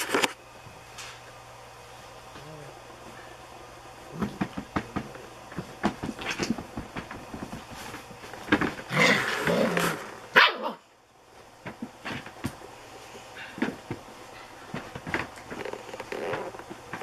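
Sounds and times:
puppies scuffling: 4.1 - 10.2, 11.4 - 17.0
puppy barks and growls: 8.9 - 10.9.

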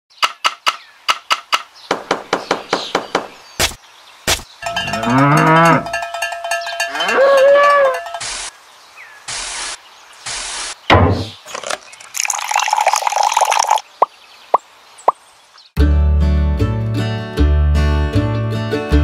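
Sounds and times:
cow mooing: 4.6 - 6.0, 6.8 - 8.1
cowbell clanking: 4.6 - 8.3
sharp knocks: 10.9 - 11.4.

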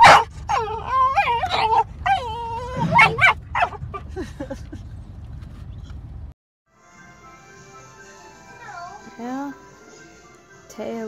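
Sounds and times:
dog barking and yelping: 0.0 - 4.1
dog whining: 0.0 - 4.1
low rumble: 0.3 - 6.3.

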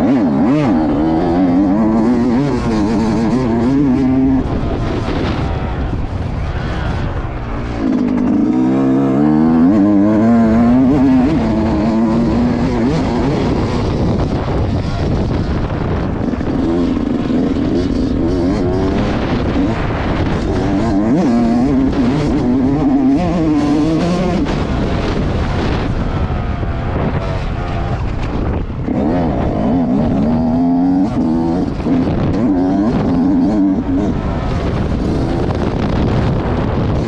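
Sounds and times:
dirt bike engine revving: 0.0 - 37.0
wind noise on microphone: 0.0 - 37.0.

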